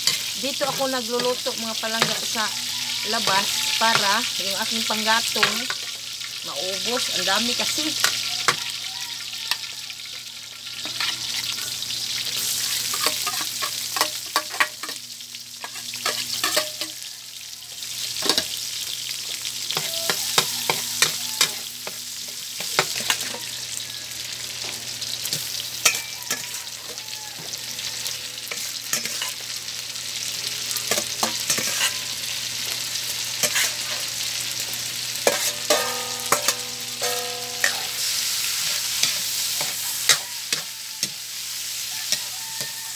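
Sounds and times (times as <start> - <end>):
pork sizzling in wok: 0.0 - 42.9
metal spatula scraping pan: 19.8 - 22.0, 25.3 - 29.5, 30.9 - 32.1, 33.4 - 34.2, 35.2 - 41.2.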